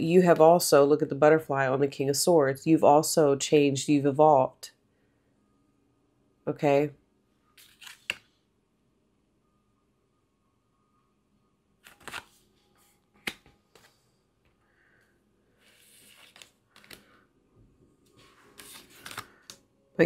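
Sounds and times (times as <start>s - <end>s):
cards clicking and tapping: 7.6s - 8.3s, 13.2s - 13.9s, 16.1s - 17.2s, 18.6s - 19.6s
cards sliding rustle: 7.6s - 8.3s, 11.8s - 14.0s, 15.6s - 17.2s, 18.1s - 19.6s.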